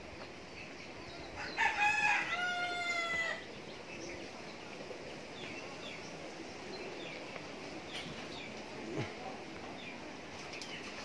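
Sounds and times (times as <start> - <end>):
rooster crowing: 1.4 - 3.5.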